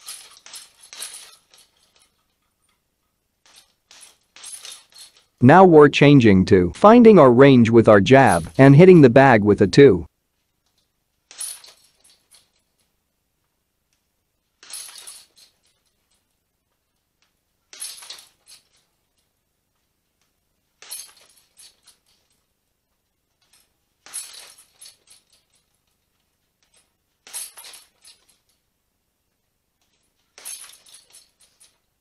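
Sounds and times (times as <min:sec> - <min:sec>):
hanging chains jangling: 0:00.0 - 0:02.8, 0:03.4 - 0:05.4, 0:08.3 - 0:08.6, 0:11.3 - 0:12.9, 0:14.6 - 0:16.3, 0:17.7 - 0:19.2, 0:20.8 - 0:22.5, 0:23.4 - 0:26.0, 0:26.6 - 0:28.6, 0:29.8 - 0:31.9.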